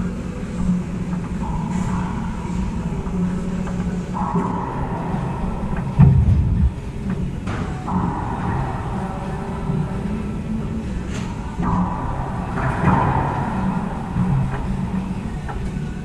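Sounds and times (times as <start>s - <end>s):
steady low hum: 0.0s - 16.0s
dull low thump: 6.0s - 7.0s.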